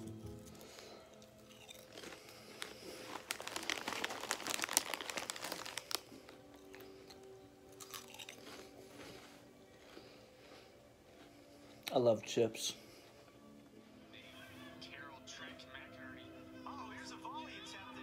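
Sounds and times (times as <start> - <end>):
faint background music: 0.0 - 18.0
person crunching chips: 0.2 - 10.2.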